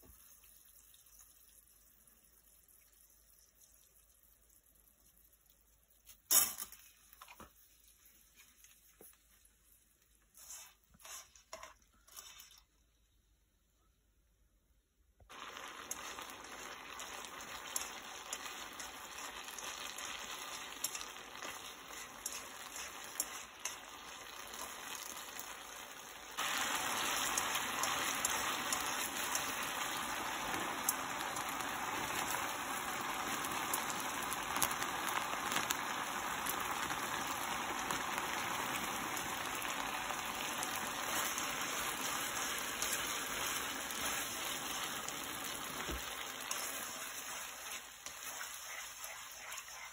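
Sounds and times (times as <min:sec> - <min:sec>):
pasta water boiling and bubbling: 0:00.0 - 0:13.7, 0:15.2 - 0:49.9.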